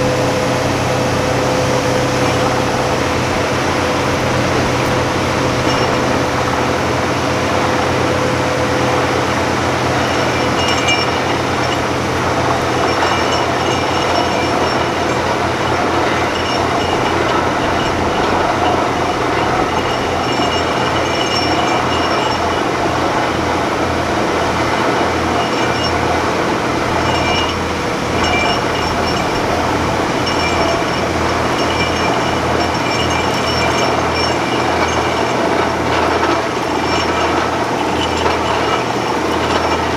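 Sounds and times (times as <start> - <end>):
drilling rig running: 0.0 - 39.9
high ringing notes: 8.8 - 39.9.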